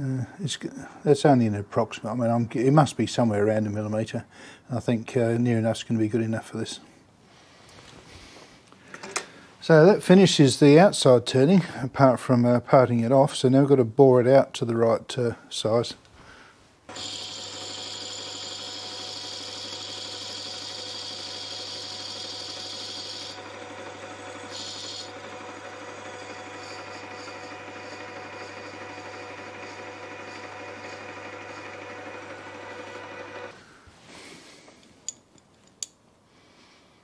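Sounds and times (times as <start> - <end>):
lathe motor hum: 16.9 - 33.6.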